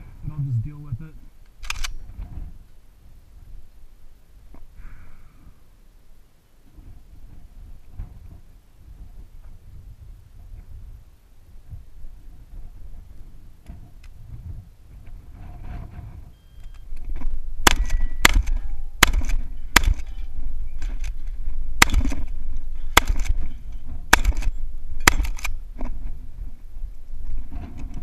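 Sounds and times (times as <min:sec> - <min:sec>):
shotgun shots: 0:17.6 - 0:20.2, 0:21.8 - 0:22.3, 0:22.9 - 0:23.4, 0:24.1 - 0:25.6.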